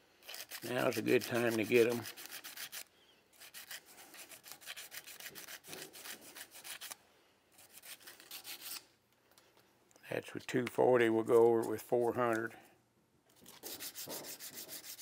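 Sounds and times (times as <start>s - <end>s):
sandpaper rubbing on steel: 0.2s - 2.8s, 3.4s - 7.0s, 7.6s - 8.8s, 13.5s - 15.0s.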